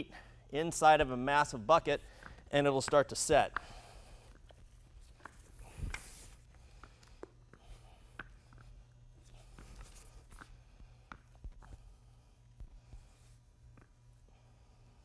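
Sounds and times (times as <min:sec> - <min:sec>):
low steady hum: 0:00.0 - 0:15.0
spiked shoes tapping on wet coating: 0:02.1 - 0:03.9.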